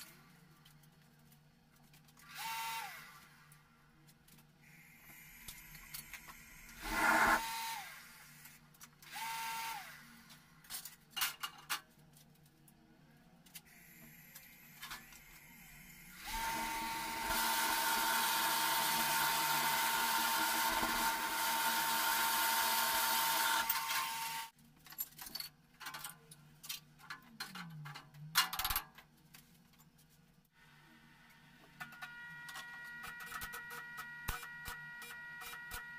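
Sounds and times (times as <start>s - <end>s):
electric blower whining: 6.8s - 7.8s, 16.2s - 24.5s.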